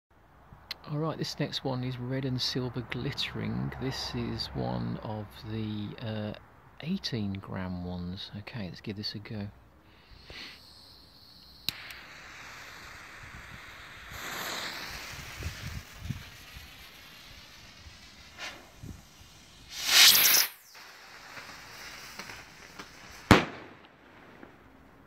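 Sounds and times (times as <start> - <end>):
firework rocket whoosh: 9.9 - 24.6
firework bang: 11.6 - 24.6.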